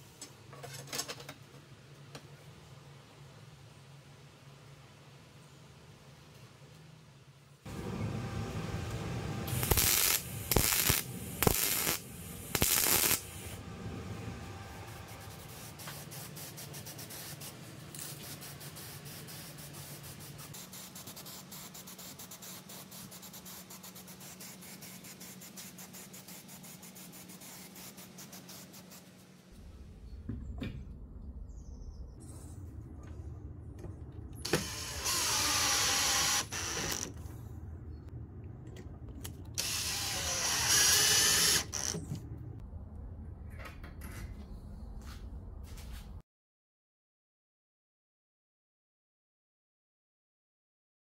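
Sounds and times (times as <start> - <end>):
welder crackling bursts: 7.7 - 13.6, 34.4 - 37.2, 39.6 - 42.0
spray paint can hissing: 9.5 - 13.6, 15.4 - 29.2.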